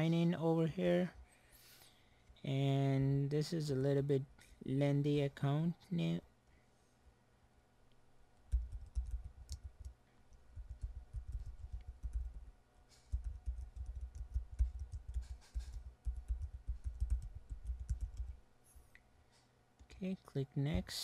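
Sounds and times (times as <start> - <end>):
rapid keyboard typing: 8.5 - 18.4.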